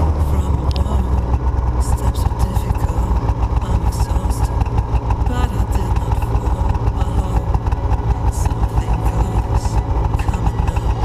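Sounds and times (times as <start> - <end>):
snowmobile engine idling: 0.0 - 11.0.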